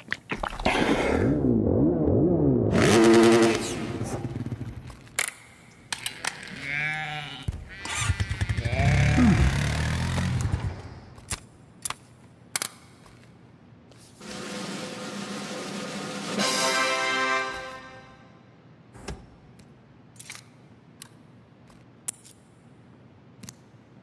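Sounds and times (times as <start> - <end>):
off-road vehicle engine revving: 2.7 - 4.4, 8.5 - 10.9.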